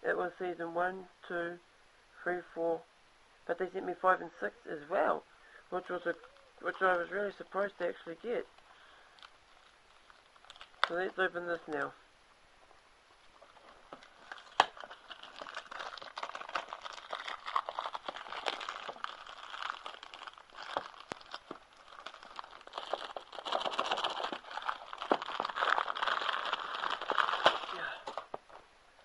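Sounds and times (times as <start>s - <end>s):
packaging crinkling and rustling: 8.5s - 11.8s, 13.1s - 28.6s.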